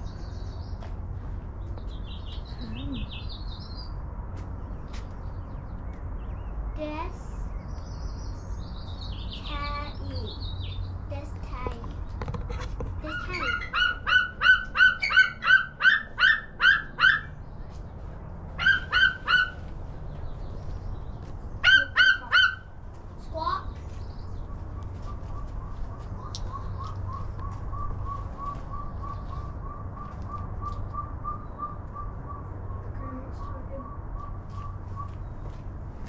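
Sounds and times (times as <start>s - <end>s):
eagle piping chirps: 13.0s - 17.4s, 18.6s - 19.6s, 24.1s - 35.4s.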